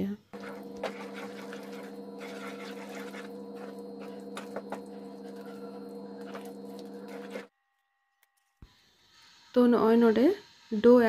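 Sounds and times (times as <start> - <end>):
low hum: 0.4 - 7.5
spatula scraping metal pan: 0.4 - 7.5
spatula squelching in wet mixture: 0.4 - 7.5.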